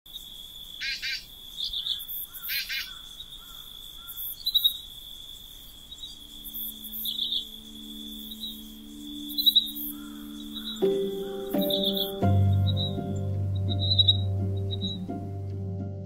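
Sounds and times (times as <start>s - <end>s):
cricket trill: 0.1s - 15.1s
bird chirps: 5.7s - 15.3s
soft music chord: 6.2s - 16.0s.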